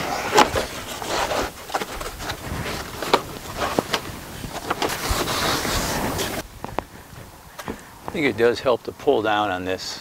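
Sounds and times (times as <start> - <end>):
plastic panel scraping: 0.0 - 6.4.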